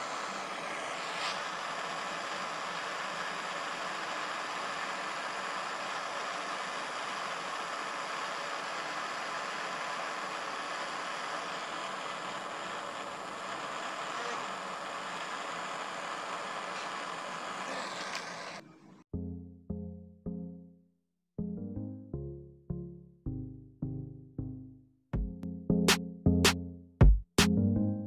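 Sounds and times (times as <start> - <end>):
torch flame hissing: 0.0 - 18.7.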